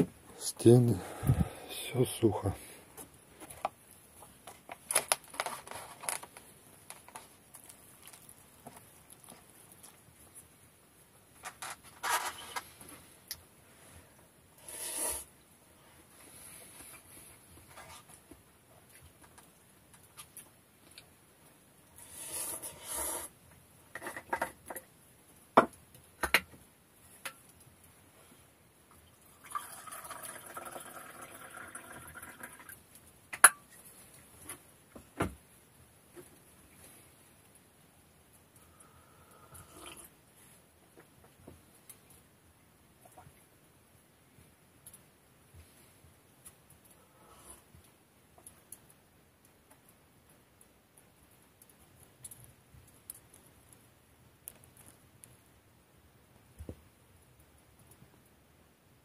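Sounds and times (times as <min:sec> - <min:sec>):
utensil scraping a cup: 0:14.6 - 0:15.3, 0:22.0 - 0:23.3
hot drink pouring into a mug: 0:29.1 - 0:32.8.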